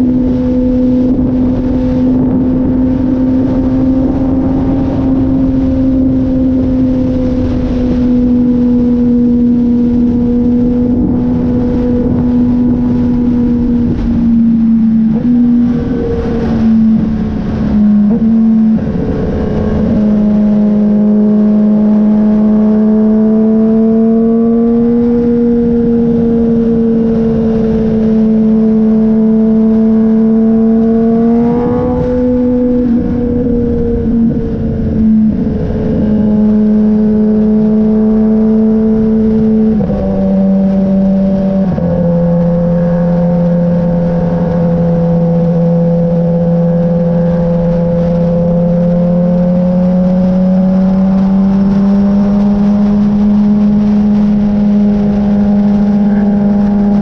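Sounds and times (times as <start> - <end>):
motorcycle engine cruising: 0.0 - 57.0
wind rush: 0.0 - 57.0.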